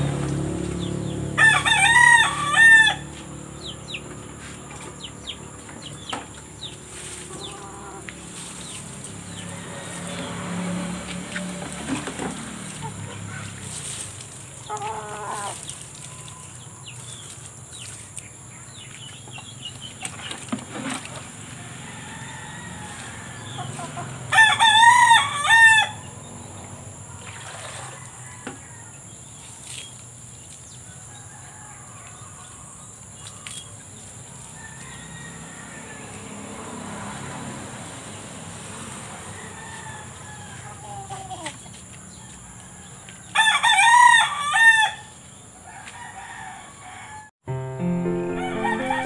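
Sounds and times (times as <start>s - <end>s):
rooster crowing: 1.2s - 3.2s, 21.6s - 26.1s, 30.9s - 32.6s, 34.5s - 36.5s, 39.1s - 41.1s, 42.2s - 47.3s, 48.3s - 49.0s.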